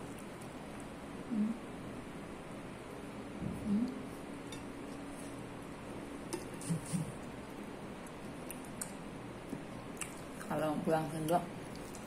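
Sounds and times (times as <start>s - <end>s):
soft chewing: 0.0s - 1.0s, 3.8s - 12.0s
low room hum: 0.0s - 12.0s.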